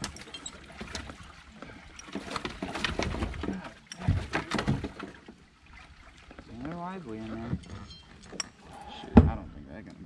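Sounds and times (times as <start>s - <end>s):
water sloshing: 0.0s - 9.6s.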